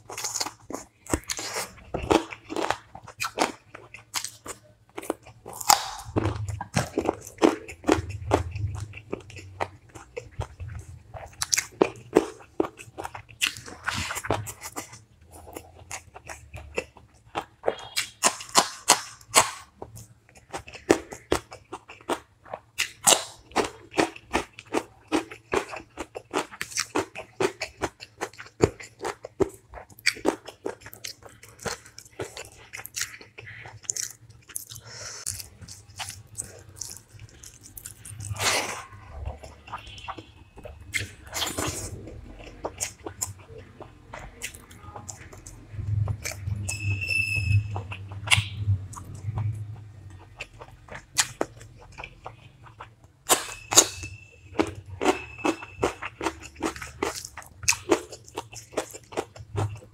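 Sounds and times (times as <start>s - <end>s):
close chewing and biting: 0.0s - 59.9s.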